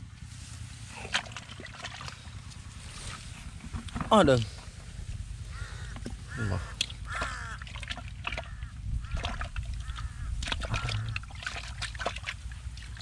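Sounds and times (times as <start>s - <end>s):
short arched animal calls: 5.4s - 7.7s, 8.4s - 11.3s
hands digging in mud: 6.1s - 13.0s.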